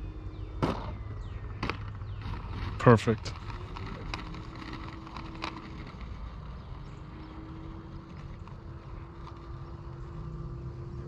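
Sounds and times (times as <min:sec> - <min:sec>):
electric motor whine: 0:03.4 - 0:11.0.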